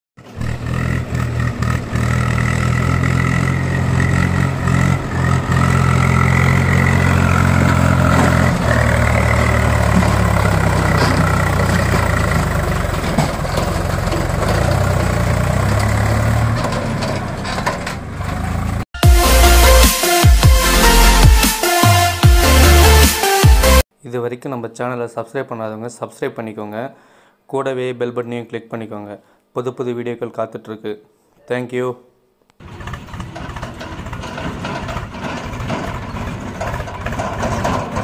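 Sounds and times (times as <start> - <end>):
tractor diesel engine under load: 0.2 - 23.8, 32.6 - 38.0.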